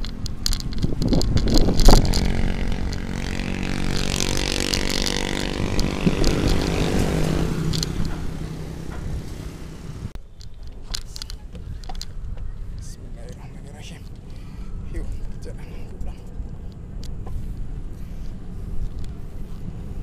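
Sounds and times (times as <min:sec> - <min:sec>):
motorcycle engine running: 0:00.0 - 0:10.2
wind rush: 0:00.0 - 0:10.2
bicycle rattling over rough ground: 0:00.0 - 0:17.2.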